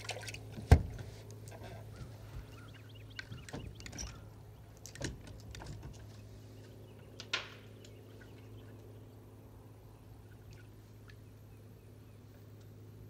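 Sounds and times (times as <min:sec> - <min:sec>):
steady low hum: 0:00.0 - 0:13.0
knocks and taps on boat: 0:00.5 - 0:01.1, 0:01.9 - 0:04.2.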